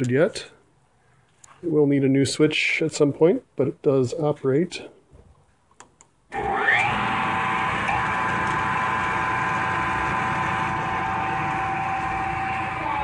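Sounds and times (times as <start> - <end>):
milling machine whine and hum: 6.4 - 13.0.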